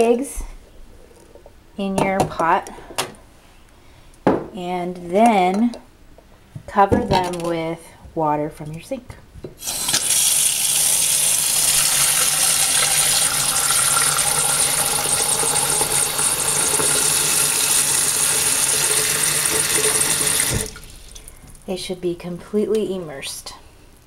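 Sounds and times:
faucet running into saucepan: 0:09.6 - 0:21.3.

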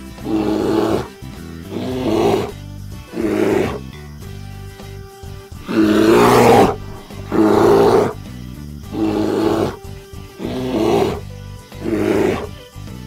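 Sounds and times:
background music: 0:00.0 - 0:13.0
bear growling: 0:00.2 - 0:01.1, 0:01.7 - 0:03.9, 0:05.6 - 0:08.2, 0:08.9 - 0:09.8, 0:10.4 - 0:12.6.

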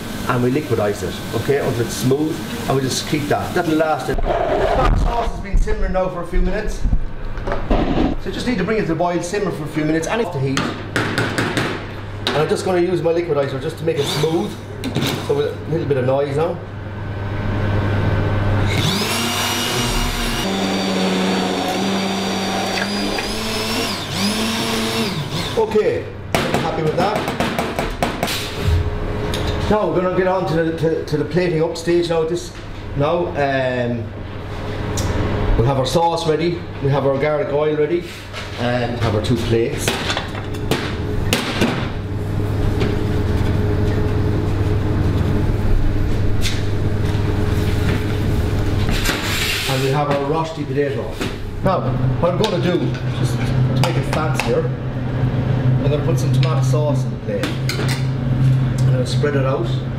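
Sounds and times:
low machine hum: 0:00.0 - 0:59.9
immersion blender motor whining: 0:18.6 - 0:25.6.

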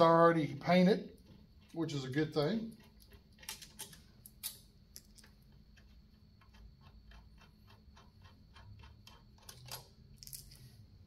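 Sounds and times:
socket ratchet clicking: 0:02.8 - 0:10.6.

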